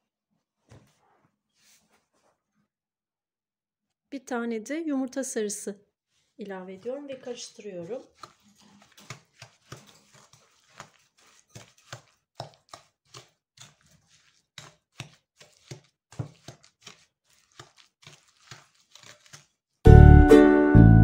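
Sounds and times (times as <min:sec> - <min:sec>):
wooden spatula scraping glass bowl: 0:06.2 - 0:19.8.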